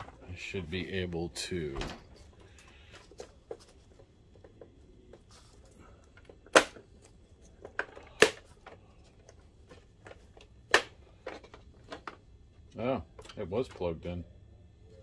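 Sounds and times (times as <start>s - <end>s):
plastic catches snapping: 6.2s - 6.9s, 10.7s - 12.1s.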